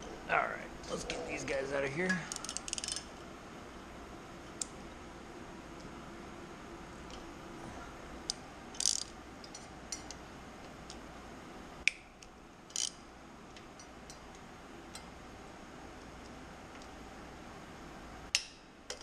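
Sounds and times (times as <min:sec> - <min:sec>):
ratchet clicking: 0:02.3 - 0:03.0, 0:08.7 - 0:10.1, 0:12.7 - 0:13.0.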